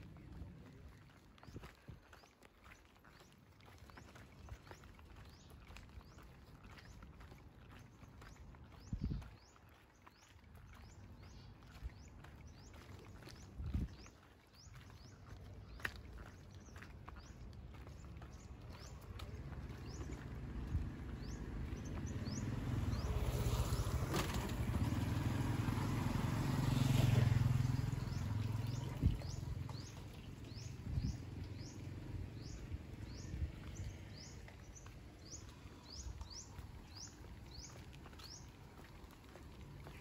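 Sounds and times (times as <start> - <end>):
vehicle passing: 18.5 - 40.0.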